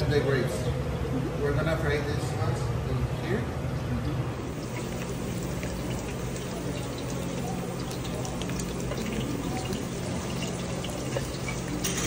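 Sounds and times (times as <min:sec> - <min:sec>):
nuts sizzling in oil: 0:04.4 - 0:12.0.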